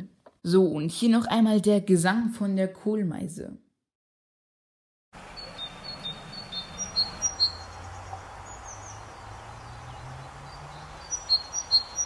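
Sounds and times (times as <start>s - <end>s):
great tit singing: 5.2s - 12.0s.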